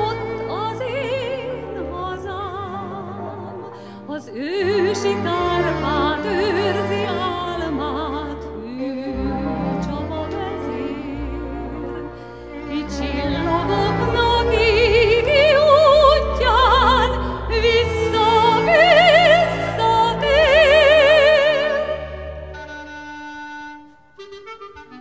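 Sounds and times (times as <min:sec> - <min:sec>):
orchestra accompaniment: 0:00.0 - 0:25.0
woman singing with vibrato: 0:12.7 - 0:22.7.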